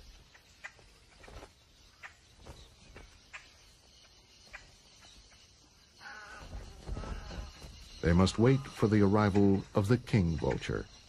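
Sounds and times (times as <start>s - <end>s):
vultures tapping and scuffling: 6.0s - 11.0s.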